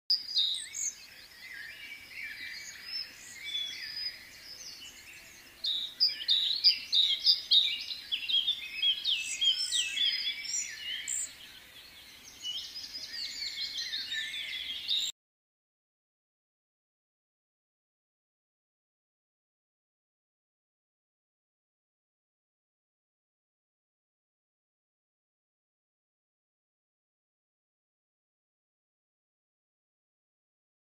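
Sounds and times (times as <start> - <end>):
small birds chirping: 0.1 - 15.1.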